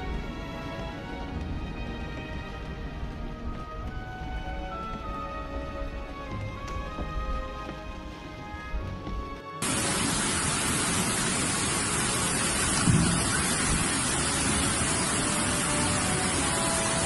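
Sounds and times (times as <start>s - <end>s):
floodwater roaring: 9.6s - 17.0s.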